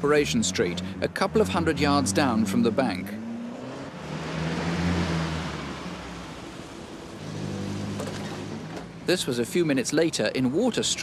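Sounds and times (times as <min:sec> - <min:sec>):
road noise: 0:00.0 - 0:11.0
van engine hum: 0:00.0 - 0:11.0.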